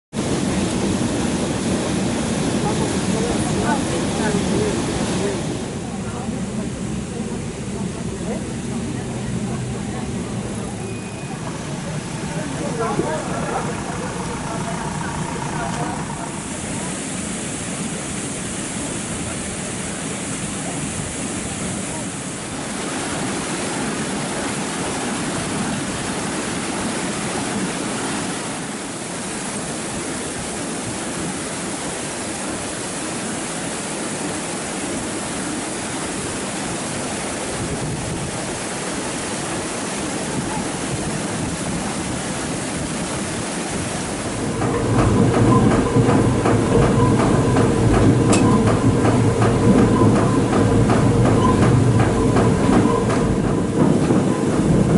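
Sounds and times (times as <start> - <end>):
water rushing: 0.1 - 54.9
wooden gear wheels clattering: 44.5 - 54.9.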